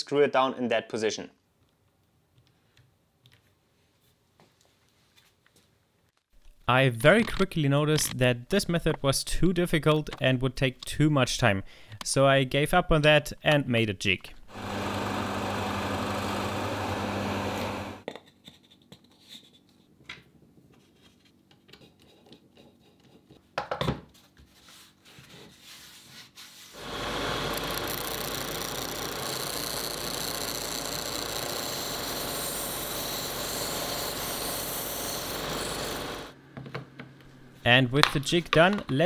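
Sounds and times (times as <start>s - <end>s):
machine humming: 14.5s - 18.0s, 26.8s - 36.4s
power tool hissing: 14.5s - 18.0s, 26.8s - 36.4s.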